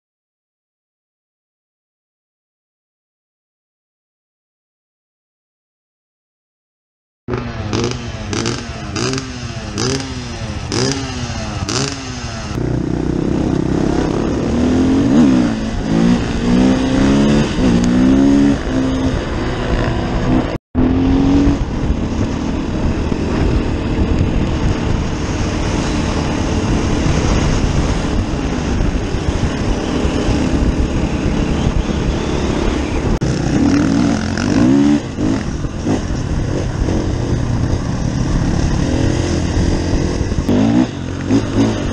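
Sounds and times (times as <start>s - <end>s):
dirt bike engine shifting gears: 7.3s - 41.9s
engine revving in blips: 13.6s - 22.0s, 38.3s - 41.9s.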